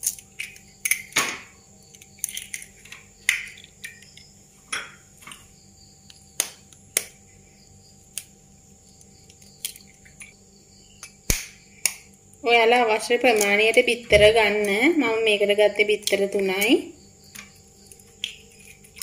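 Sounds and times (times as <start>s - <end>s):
eggshells cracking against fork: 0.0s - 1.2s, 1.9s - 4.3s, 9.0s - 10.4s, 11.0s - 14.8s, 17.3s - 19.0s.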